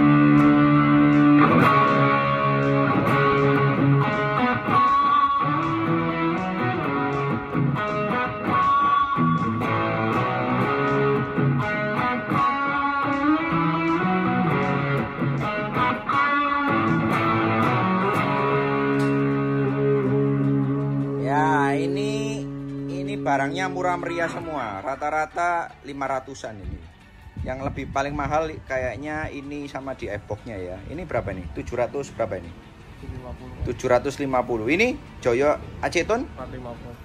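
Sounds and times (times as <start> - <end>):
electric guitar playing slow hymn: 0.0 - 25.1.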